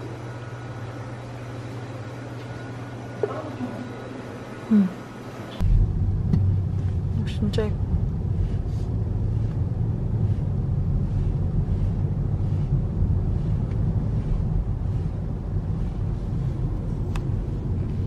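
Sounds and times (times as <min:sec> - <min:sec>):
car interior road rumble: 0:05.6 - 0:18.0.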